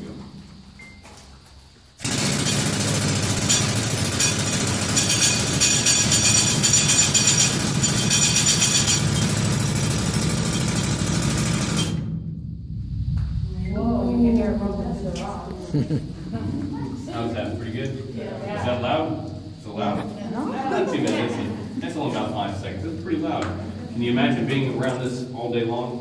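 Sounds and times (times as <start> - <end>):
pneumatic drill hammering: 2.0 - 12.1.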